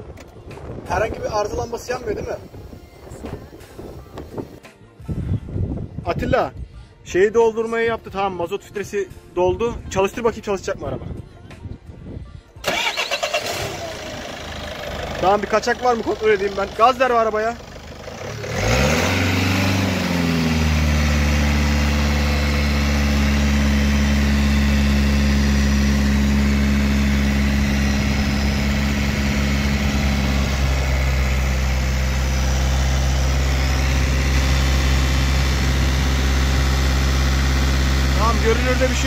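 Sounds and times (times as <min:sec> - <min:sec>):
diesel engine revving and idling: 0:12.6 - 0:39.0.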